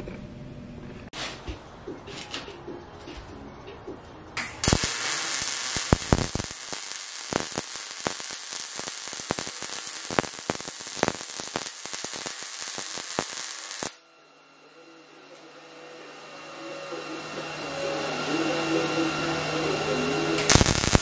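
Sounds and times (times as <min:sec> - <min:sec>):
arc welding crackle and pops: 0:04.4 - 0:14.0, 0:20.4 - 0:21.0.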